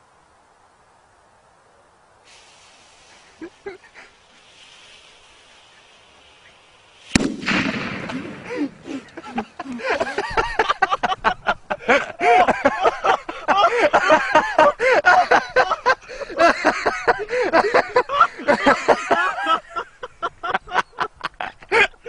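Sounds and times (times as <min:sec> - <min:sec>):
firecracker bang: 0:04.4 - 0:09.2
people shouting and laughing: 0:08.0 - 0:19.7.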